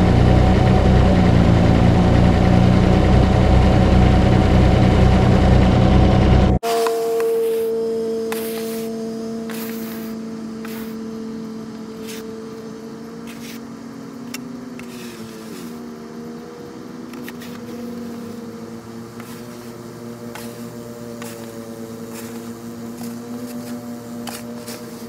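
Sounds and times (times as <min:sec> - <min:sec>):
tractor diesel engine running: 0:00.0 - 0:25.0.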